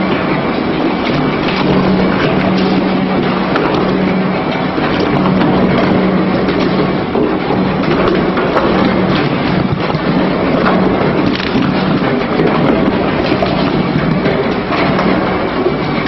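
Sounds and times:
industrial shredder grinding: 0:00.0 - 0:16.0.

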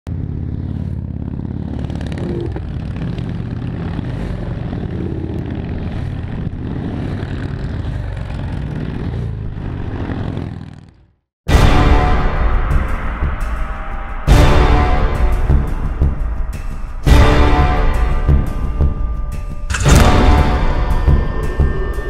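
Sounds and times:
vehicle engines running: 0:00.1 - 0:11.1.

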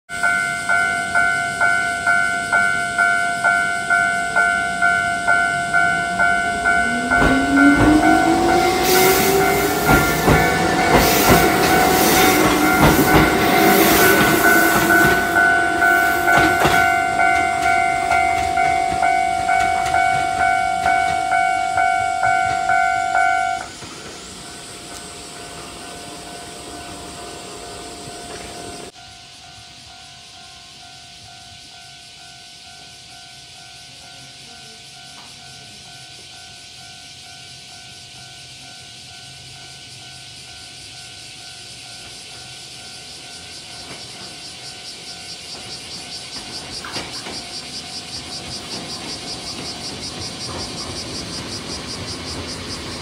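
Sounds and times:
level crossing alarm ringing: 0:00.1 - 0:23.8
rising whine of train: 0:00.1 - 0:53.0
train rumble: 0:00.1 - 0:53.0
wheel clacks over rail joints: 0:05.8 - 0:24.0, 0:45.5 - 0:53.0.

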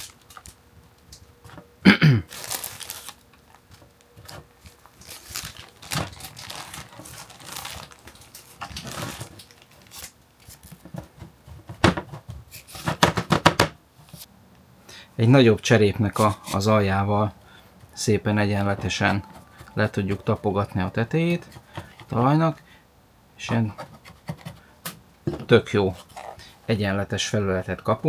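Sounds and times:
plastic bag crinkling: 0:00.0 - 0:00.6, 0:02.3 - 0:10.8.

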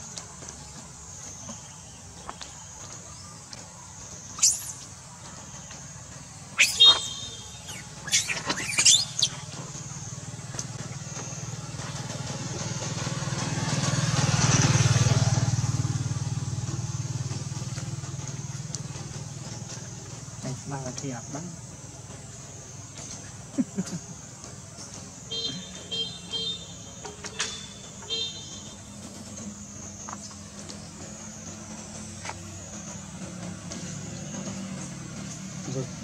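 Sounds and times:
vehicle engine passing: 0:00.2 - 0:36.0
monkey squeals: 0:04.4 - 0:04.8, 0:06.6 - 0:09.5.

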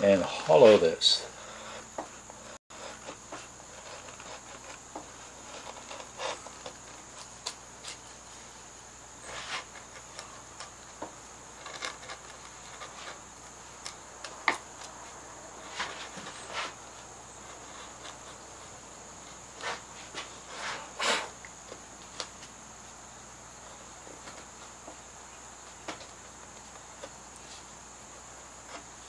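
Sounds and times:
carving gouge scraping wood: 0:01.4 - 0:07.0, 0:11.6 - 0:13.2.

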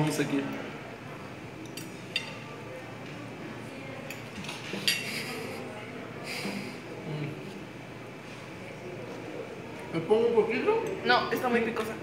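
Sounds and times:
cutlery clinking on a plate: 0:01.6 - 0:02.4, 0:04.0 - 0:05.5.

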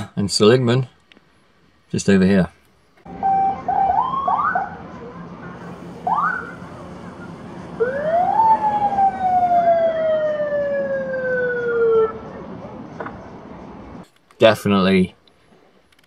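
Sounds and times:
siren whooping and gliding: 0:03.1 - 0:04.8, 0:05.9 - 0:12.4.

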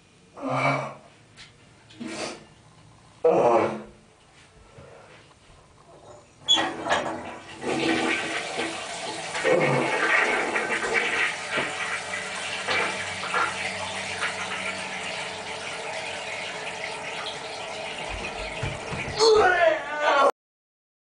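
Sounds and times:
toilet flushing: 0:06.4 - 0:19.4.

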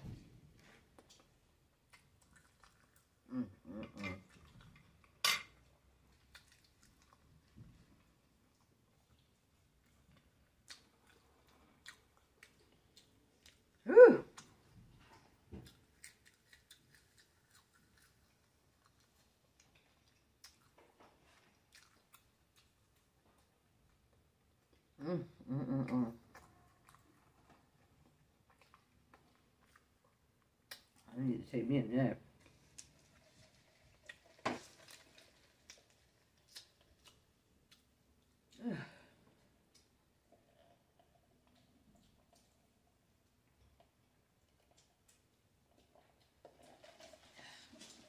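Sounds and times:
chewing with mouth closed: 0:01.9 - 0:03.2, 0:06.1 - 0:07.5, 0:08.5 - 0:13.8, 0:15.6 - 0:23.5, 0:26.3 - 0:31.0
short falling vocal sound: 0:13.9 - 0:14.3.

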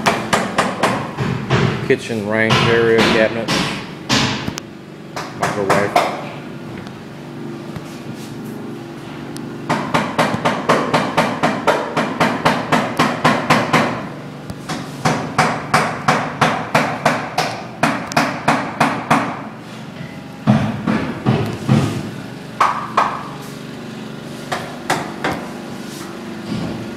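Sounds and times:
steady low hum: 0:00.0 - 0:26.9.

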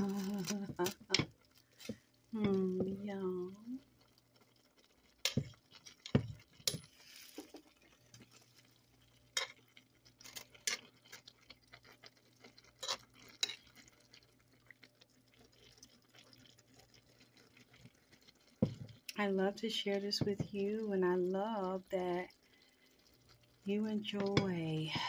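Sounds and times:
utensil stirring greens in pot: 0:00.0 - 0:04.1, 0:04.7 - 0:11.0, 0:12.6 - 0:14.2.

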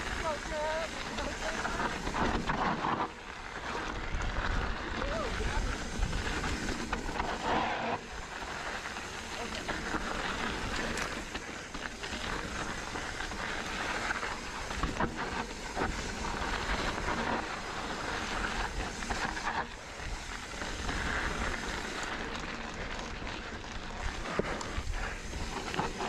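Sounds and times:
bike tyres on dirt: 0:00.0 - 0:26.0
wind rush: 0:04.0 - 0:07.5.

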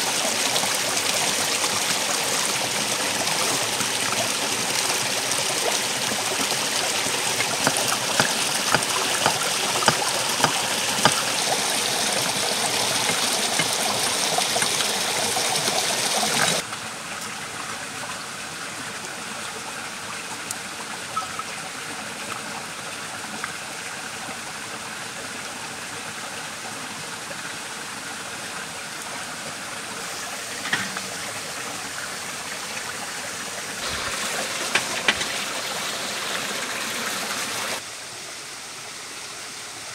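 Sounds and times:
stream running: 0:00.0 - 0:39.9.

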